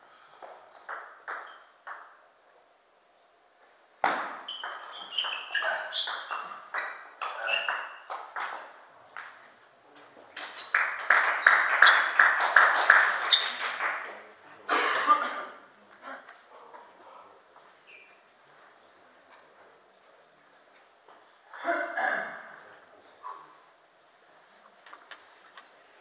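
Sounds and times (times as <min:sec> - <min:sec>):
table tennis ball hits: 0:00.8 - 0:02.2, 0:04.0 - 0:09.4
ball bouncing on table: 0:04.0 - 0:09.4.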